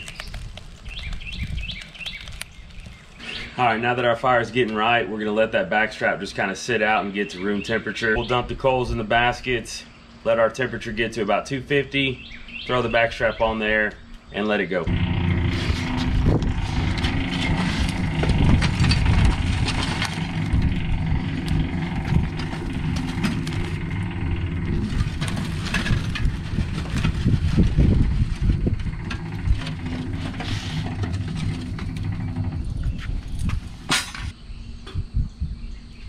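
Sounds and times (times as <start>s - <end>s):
charcoal briquettes clattering: 0.0s - 3.9s, 14.9s - 34.3s
engine running: 14.9s - 34.3s.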